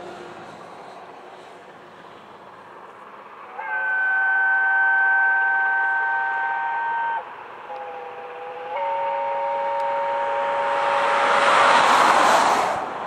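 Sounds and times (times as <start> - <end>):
steam locomotive whistle: 3.5 - 12.5.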